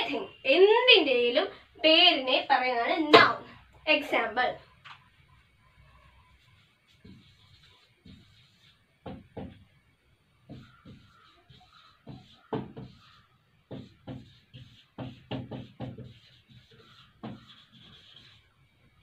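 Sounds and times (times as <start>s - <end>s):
marker writing on whiteboard: 6.3s - 9.6s, 10.4s - 18.5s.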